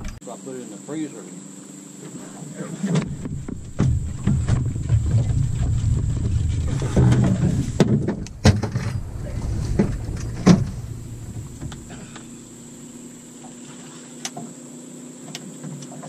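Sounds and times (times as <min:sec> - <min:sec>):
steady low hum: 0:00.0 - 0:15.3
gear knocking against boat: 0:02.9 - 0:13.6
wind rumbling on microphone: 0:03.0 - 0:13.4.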